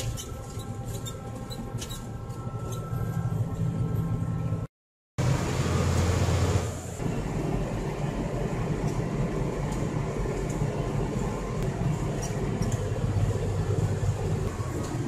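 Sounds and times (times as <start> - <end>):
tractor diesel engine running: 5.2 - 15.0.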